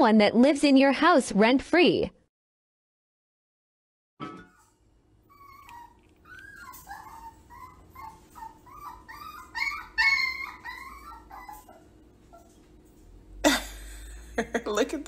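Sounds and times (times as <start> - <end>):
puppy whining: 4.4 - 13.0.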